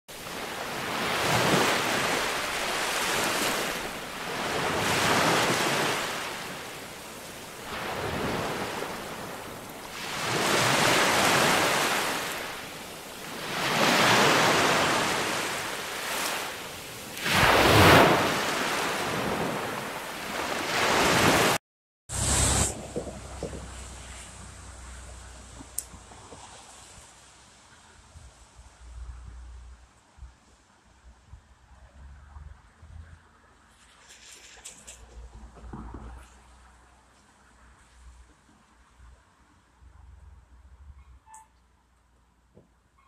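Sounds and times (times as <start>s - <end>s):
ocean waves rushing in: 0.1s - 24.7s
wave crashing: 0.2s - 24.2s.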